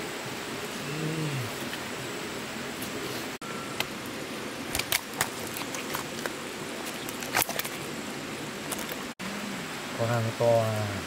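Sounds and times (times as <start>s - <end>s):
steady hiss of rain: 0.0s - 5.3s, 7.8s - 11.0s
sharp water splashes: 4.7s - 7.9s.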